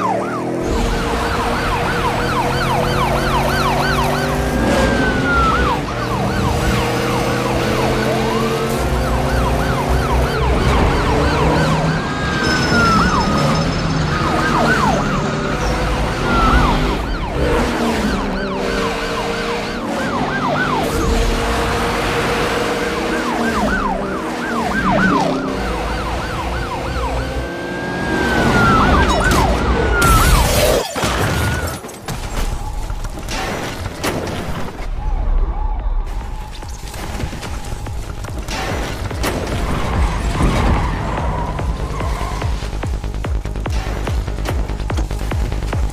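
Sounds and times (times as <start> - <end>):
police sirens wailing: 0.0 - 33.3, 34.6 - 45.9
background music with steady beat: 40.9 - 45.9.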